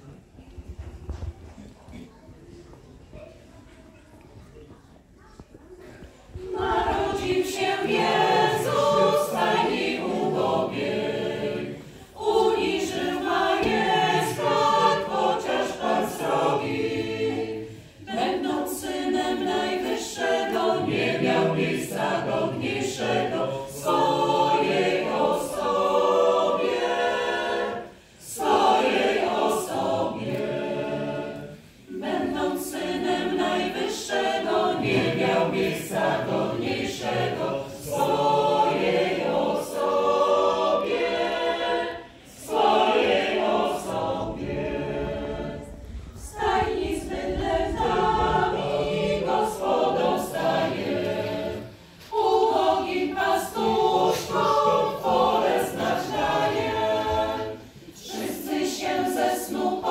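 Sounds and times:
women's choir singing a cappella: 6.0 - 59.9.

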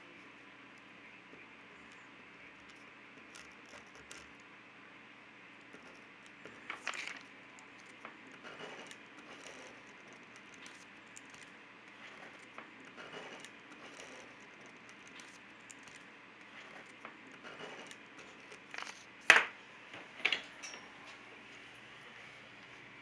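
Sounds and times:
pencil scratching on paper: 7.8 - 19.0.

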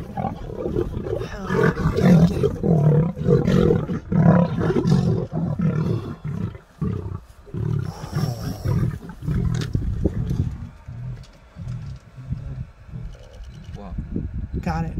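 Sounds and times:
lions growling: 0.0 - 13.8.

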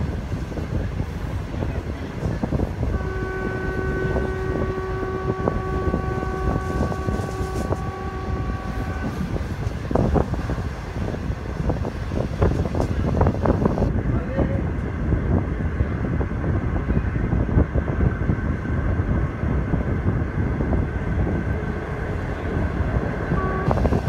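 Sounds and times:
train rumbling on track: 0.0 - 24.0
wind on microphone: 0.0 - 24.0
train horn: 2.8 - 11.8, 21.2 - 24.0.

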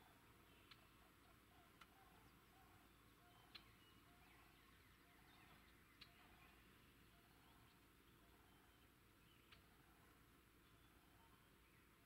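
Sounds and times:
soft ticks: 0.6 - 0.9, 1.8 - 2.0, 9.5 - 9.7.

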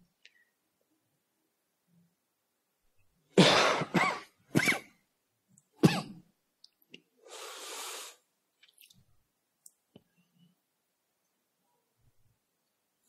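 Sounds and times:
person coughing: 3.4 - 4.8
breathy exhale: 7.2 - 8.2.

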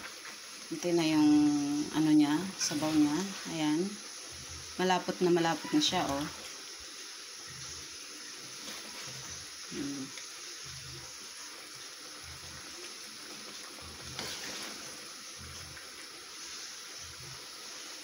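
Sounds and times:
sauce sizzling in a pan: 0.0 - 18.0.

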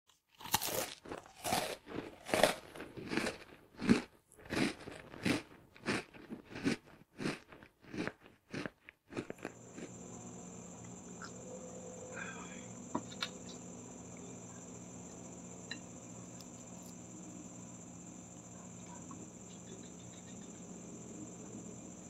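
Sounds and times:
crunching bites of crisp food: 0.1 - 11.4, 13.1 - 18.6
low hum with high whine: 9.5 - 22.0.

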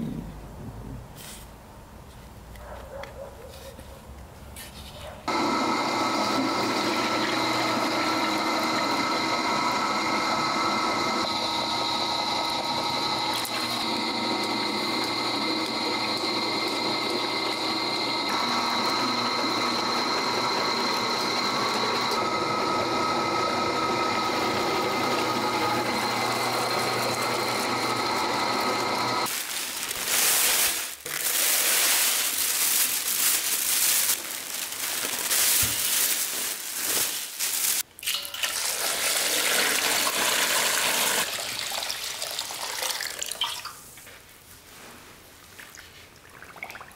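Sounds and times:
electric motor whining: 5.3 - 29.3.

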